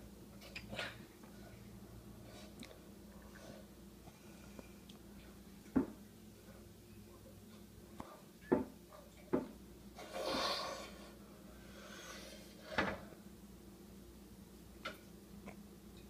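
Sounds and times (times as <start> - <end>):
sharp knocks in a kitchen: 8.5 - 9.6.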